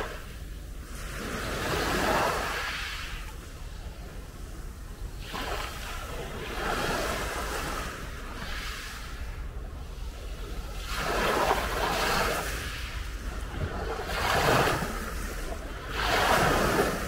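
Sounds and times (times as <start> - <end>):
sea waves breaking on shore: 0.0 - 17.0.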